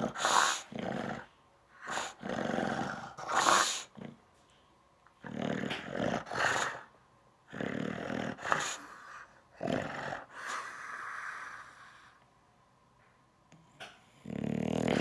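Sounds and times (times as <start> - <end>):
dog grumbling and growling: 0.0 - 4.2, 5.2 - 11.5, 14.0 - 15.0.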